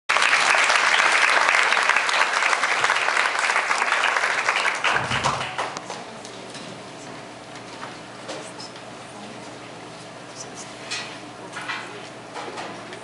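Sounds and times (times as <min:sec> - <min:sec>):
audience applauding: 0:00.1 - 0:05.9.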